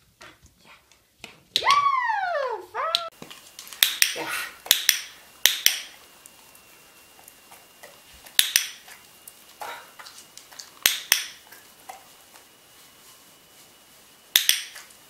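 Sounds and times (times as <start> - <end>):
soft rustling: 11.4 - 15.0.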